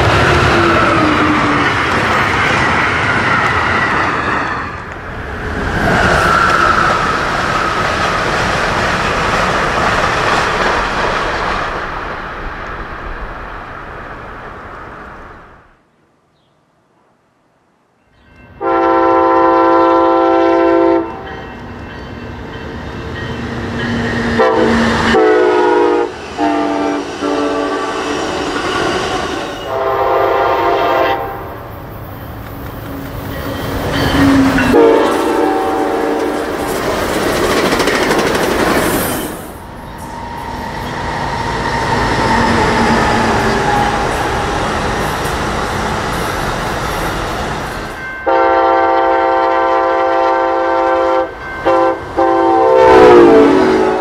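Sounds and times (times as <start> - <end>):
rumble of passing trains: 0.0 - 16.0, 17.3 - 54.0
train air horn blasts: 18.6 - 21.4, 24.3 - 31.5, 34.2 - 36.5, 48.2 - 54.0
wheels clicking on rail joints: 36.2 - 48.0.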